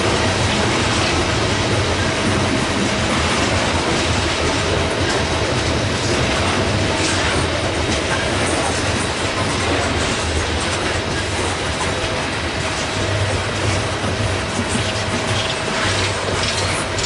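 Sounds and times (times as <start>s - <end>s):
clickety-clack of rail joints: 0.0s - 17.0s
rumble of steel train wheels: 0.0s - 17.0s.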